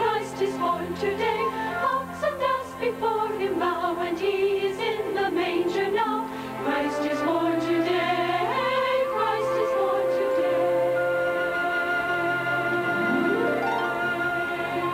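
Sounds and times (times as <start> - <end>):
choir singing: 0.0 - 14.9
sustained instrumental accompaniment: 5.2 - 14.9.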